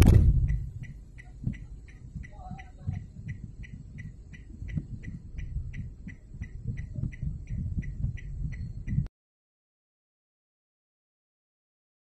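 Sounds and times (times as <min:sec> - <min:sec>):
low uneven rumble: 0:00.0 - 0:09.1
turn-signal flasher ticking: 0:00.0 - 0:09.1.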